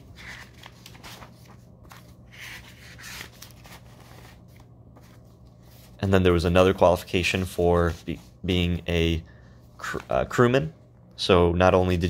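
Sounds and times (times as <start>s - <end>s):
paper sheets rustling: 0.0s - 8.6s.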